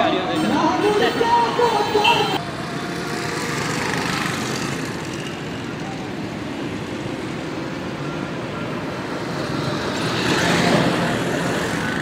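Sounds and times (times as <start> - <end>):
road traffic passing: 0.0 - 12.0.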